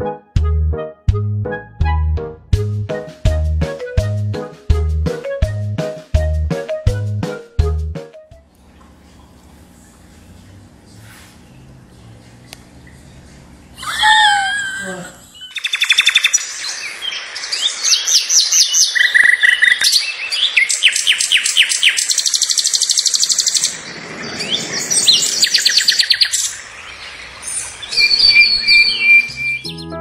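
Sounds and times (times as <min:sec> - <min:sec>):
songbirds trilling and chirping: 0:15.2 - 0:29.9
whistled bird notes: 0:15.3 - 0:29.9.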